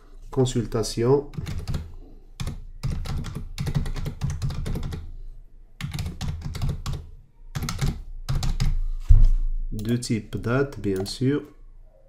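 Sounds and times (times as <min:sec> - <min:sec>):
fast typing on keyboard: 0:01.3 - 0:05.1, 0:05.8 - 0:08.8.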